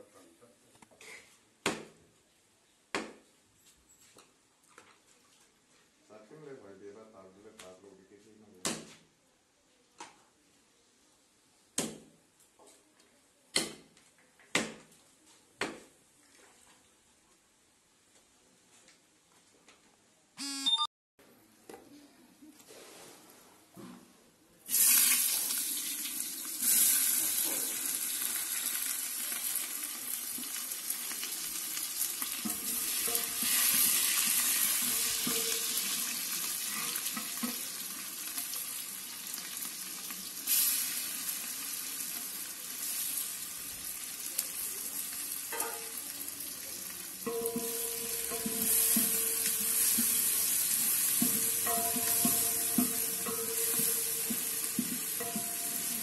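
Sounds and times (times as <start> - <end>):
meat sizzling in a pot: 24.7 - 56.0.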